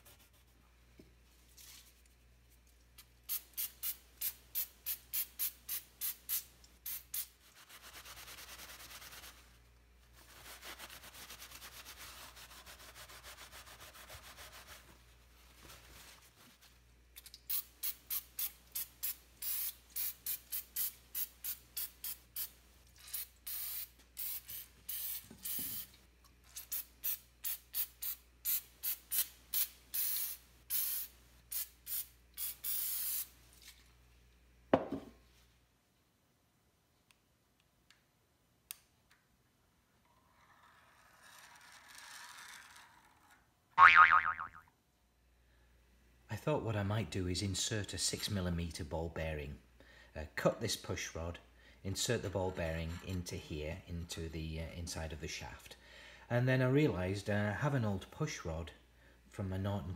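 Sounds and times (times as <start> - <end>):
aerosol spray hissing: 23.2 - 25.9.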